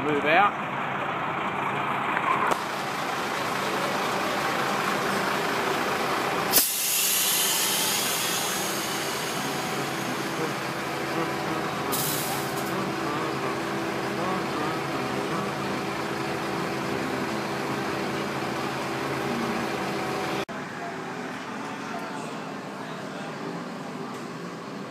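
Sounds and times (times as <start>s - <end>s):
diesel truck engines running: 0.0s - 24.9s
loud hiss of released air: 6.5s - 10.4s, 11.9s - 12.7s.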